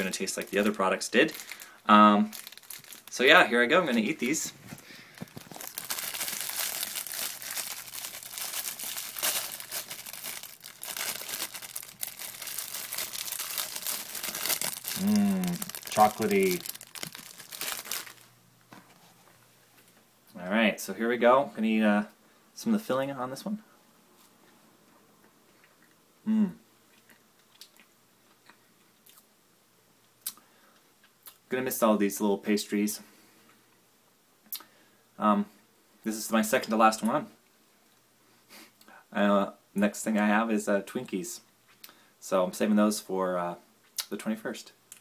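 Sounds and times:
wrapper tearing open: 0:00.0 - 0:03.3, 0:05.2 - 0:18.3
plastic wrapper crinkling: 0:00.0 - 0:18.4
person humming: 0:14.9 - 0:15.7, 0:26.3 - 0:26.6.

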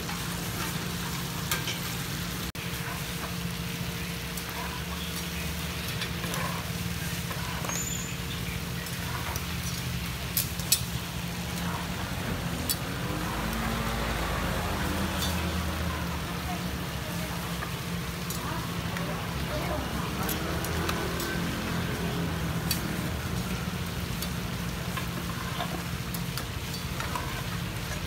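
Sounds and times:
buns sizzling in a pan: 0:00.0 - 0:28.0
metal utensils clinking on pan: 0:01.5 - 0:01.9, 0:05.8 - 0:08.0, 0:08.8 - 0:28.0.

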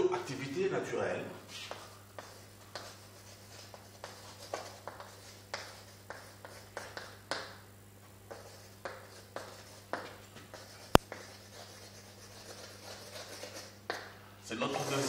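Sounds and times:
chalk tapping and scratching on blackboard: 0:01.5 - 0:07.6, 0:08.3 - 0:14.1.

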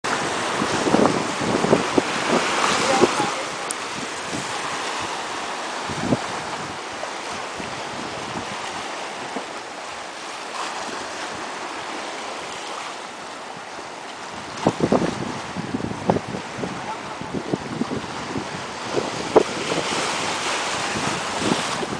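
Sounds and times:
small choppy waves: 0:00.0 - 0:21.9.

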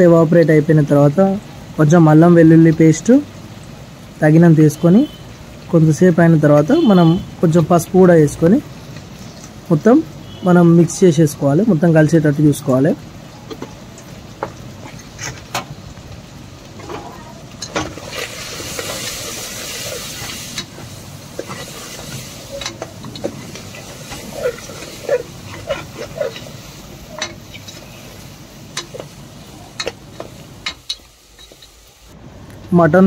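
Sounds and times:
meat sizzling in oil: 0:00.0 - 0:32.2
metal spoon scraping pot: 0:21.4 - 0:27.9.

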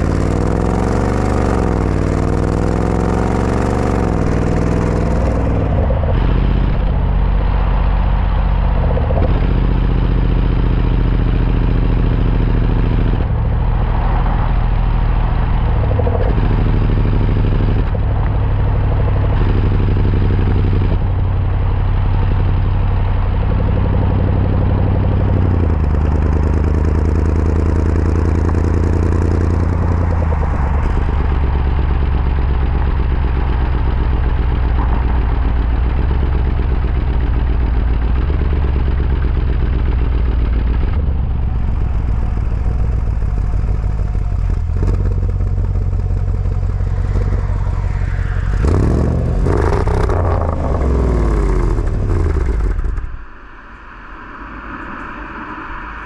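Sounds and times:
car engine idling: 0:00.0 - 0:56.0
engine revving blip: 0:44.5 - 0:53.8.

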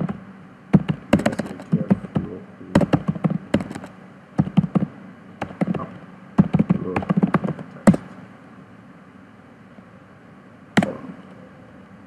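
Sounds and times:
keyboard typing clicks: 0:00.8 - 0:08.0.

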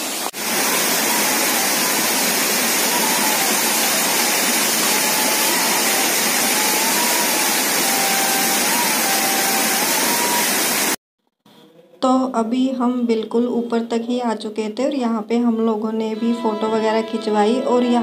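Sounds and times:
waterfall rushing: 0:00.0 - 0:11.0
faint flute melody: 0:00.6 - 0:10.9.

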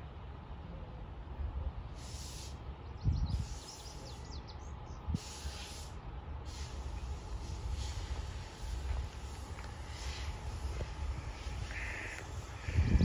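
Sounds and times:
wind buffeting microphone: 0:02.9 - 0:03.7, 0:07.1 - 0:13.0.

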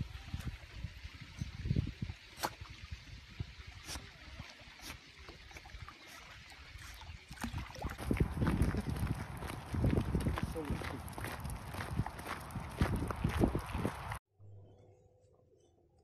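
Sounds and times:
dog splashing in water: 0:03.8 - 0:14.2.

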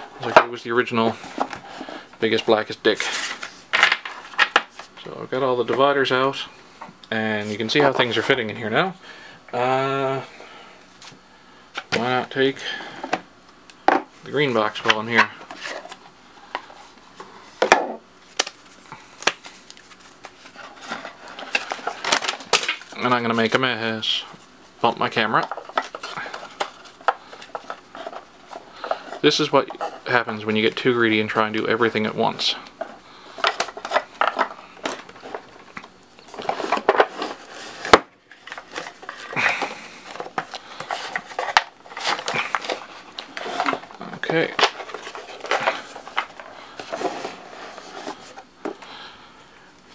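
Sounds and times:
playing cards rustling and sliding: 0:00.0 - 0:05.1, 0:14.3 - 0:24.5, 0:25.2 - 0:49.1
playing cards sliding: 0:36.3 - 0:48.8.

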